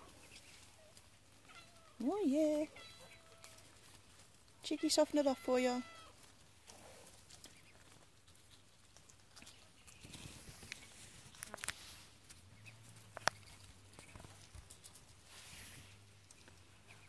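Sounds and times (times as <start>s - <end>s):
ducks pecking and rustling: 0.0s - 17.0s.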